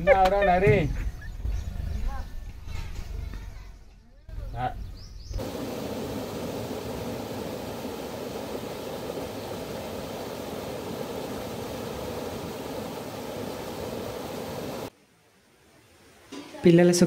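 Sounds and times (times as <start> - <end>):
stream water rushing over rocks: 5.4 - 14.9.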